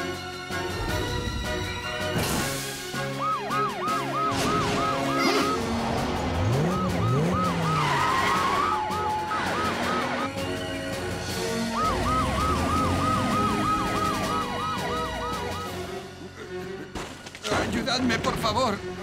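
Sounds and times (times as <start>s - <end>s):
background music: 0.0s - 19.0s
cartoon police siren: 2.9s - 10.3s, 11.4s - 16.0s.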